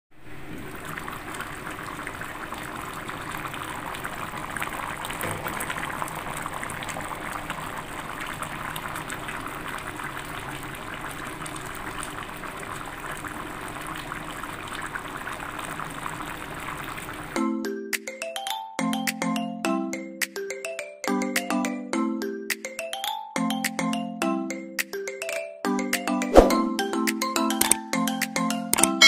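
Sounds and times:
pot boiling and bubbling: 0.2s - 17.4s.

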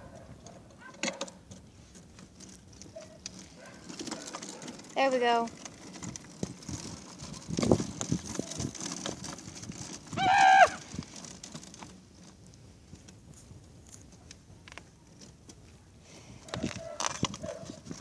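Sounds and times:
unicycle knocks and scuffs: 6.0s - 12.1s.

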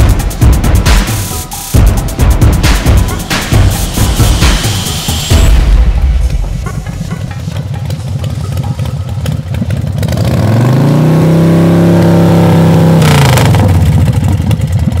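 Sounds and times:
motorcycle engine revving: 6.3s - 15.0s.

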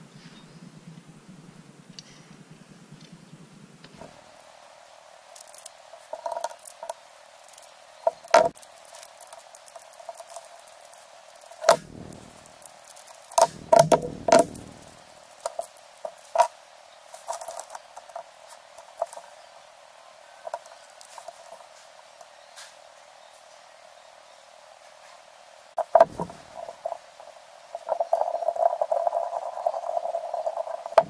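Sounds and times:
metal parts and tools clicking: 5.4s - 16.5s, 17.2s - 18.2s.

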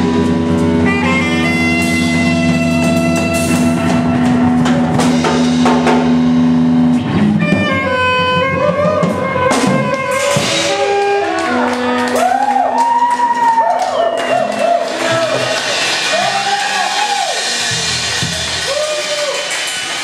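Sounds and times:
saxophone: 0.0s - 4.9s, 7.2s - 13.1s
drum kit with cymbal hits: 0.0s - 20.0s
electric guitar: 0.0s - 20.0s.

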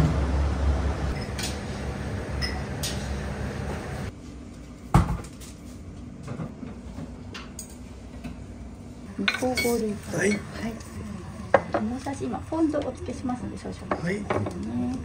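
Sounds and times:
dishes clinking: 9.2s - 10.5s.

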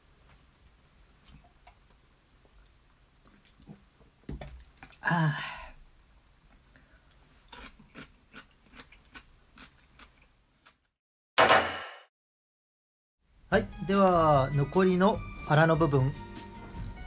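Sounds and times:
chewing: 2.5s - 3.8s, 6.5s - 10.9s.

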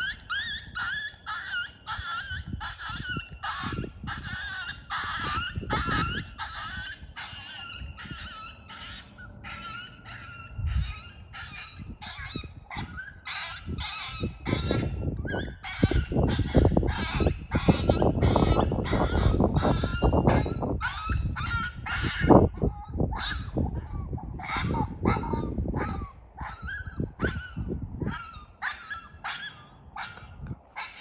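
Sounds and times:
low buffeting rumble: 2.4s - 13.0s, 13.6s - 30.8s.

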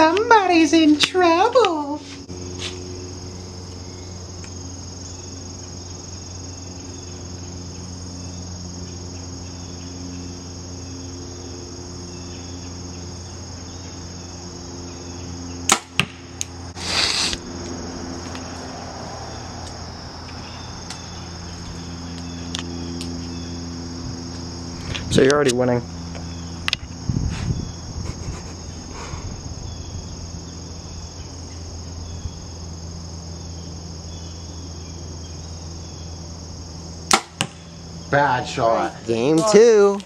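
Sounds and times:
insects chirring: 0.0s - 40.0s
short noisy burst: 16.8s - 17.4s.

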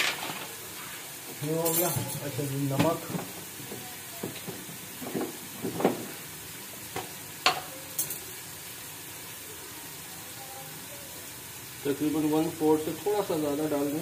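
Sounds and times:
masala sizzling in a pan: 0.0s - 14.0s
spoon knocking and scraping pan: 1.7s - 6.2s, 6.9s - 8.2s.

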